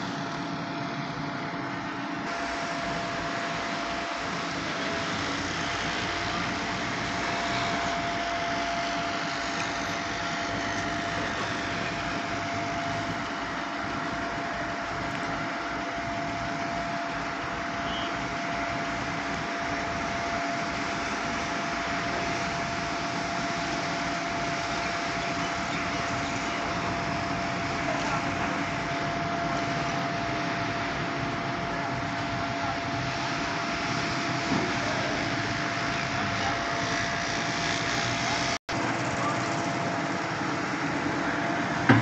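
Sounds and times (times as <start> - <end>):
concrete pump whining: 0.0 - 42.0.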